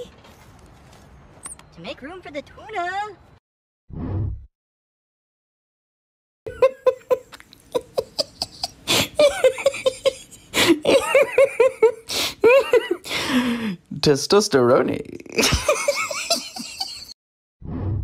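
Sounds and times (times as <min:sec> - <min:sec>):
person laughing hard: 0:06.5 - 0:13.0, 0:15.4 - 0:17.1.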